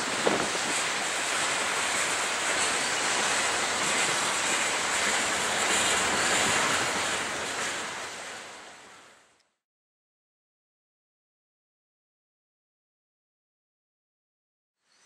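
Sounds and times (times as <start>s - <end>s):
wind on microphone: 0.0s - 1.8s, 2.8s - 7.4s
freight train cars rolling on rails: 0.0s - 9.4s.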